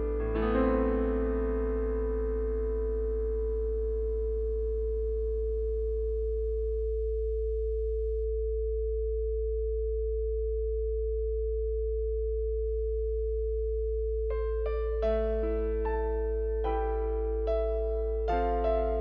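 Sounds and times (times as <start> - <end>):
soft electric piano notes: 0.0 - 6.8, 14.3 - 19.0
synthesized sine tones: 0.0 - 19.0.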